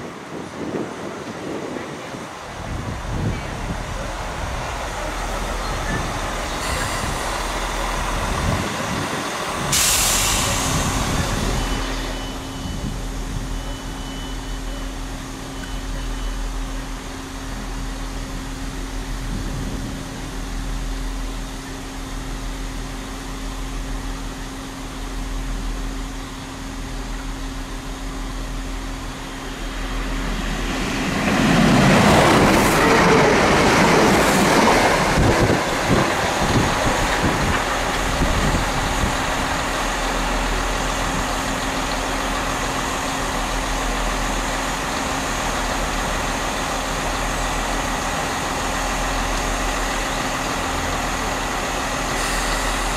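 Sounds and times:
train rushing past: 0.0s - 13.6s, 27.7s - 52.9s
train engine hum: 0.0s - 52.9s
short burst of hiss: 9.7s - 11.4s, 52.1s - 52.9s.

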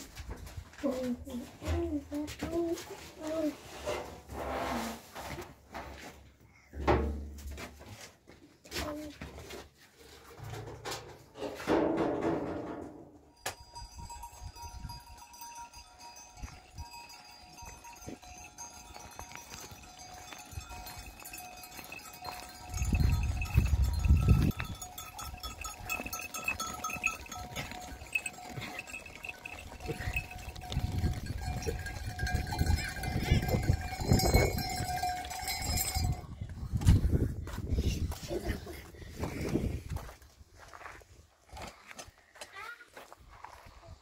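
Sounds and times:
livestock bells ringing: 13.3s - 36.9s.

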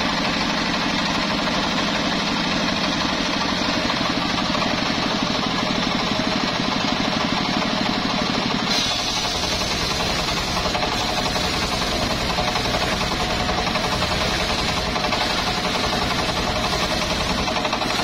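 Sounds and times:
circular saw cutting log: 8.6s - 18.0s
drive motor pulsing: 9.0s - 18.0s.

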